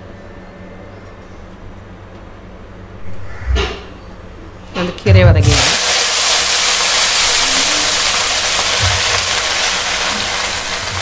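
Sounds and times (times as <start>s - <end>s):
leaves sizzling in hot oil: 5.4s - 11.0s.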